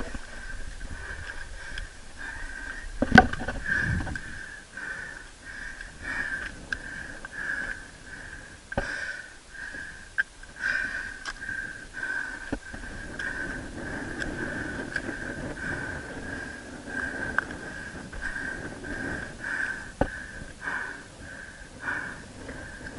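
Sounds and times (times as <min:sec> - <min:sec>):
person breathing hard: 0:00.0 - 0:22.9.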